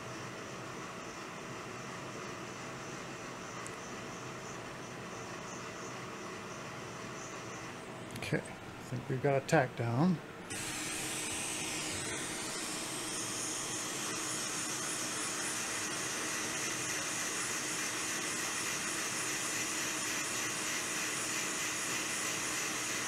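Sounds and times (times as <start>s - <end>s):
hot air station blowing hiss: 10.4s - 23.0s.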